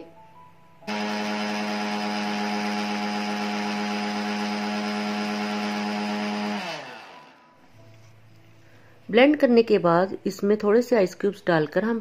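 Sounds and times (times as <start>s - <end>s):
mixer grinder motor whining: 0.9s - 7.6s.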